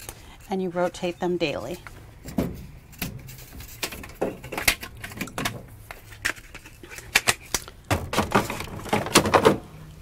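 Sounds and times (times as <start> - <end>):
clicks and knocks of hard items: 2.2 - 9.6.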